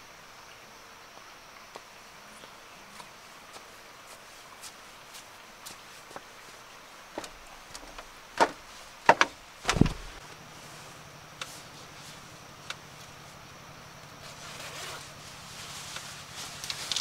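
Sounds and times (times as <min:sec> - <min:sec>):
sharp knocks and clacks: 0:07.2 - 0:10.2.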